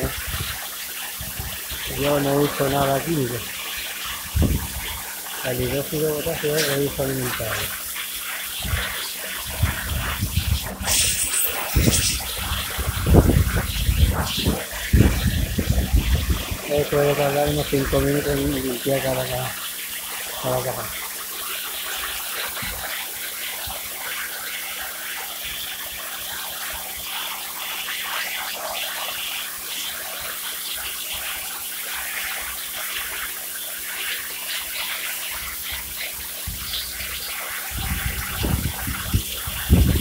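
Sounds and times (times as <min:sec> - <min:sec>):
pressure washer spraying: 0:00.0 - 0:40.0.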